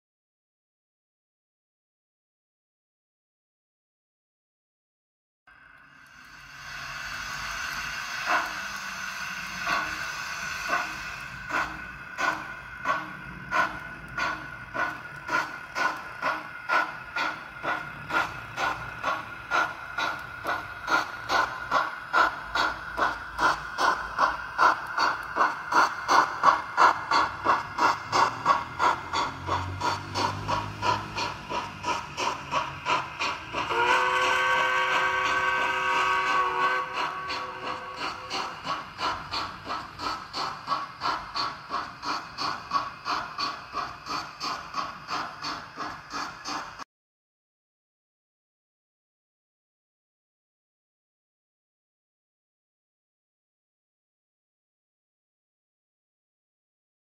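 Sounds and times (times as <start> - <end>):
model steam locomotive chuffs: 5.5 - 46.8.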